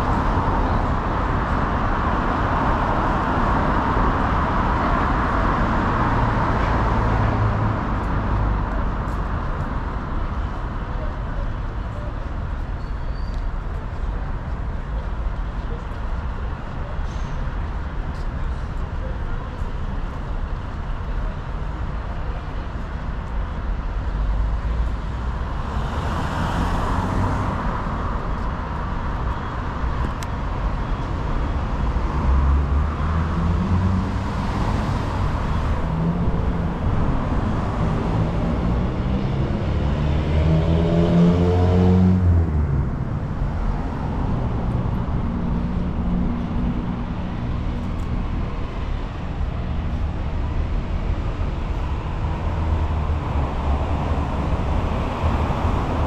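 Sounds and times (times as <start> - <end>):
engine speeding up: 35.8 - 43.2.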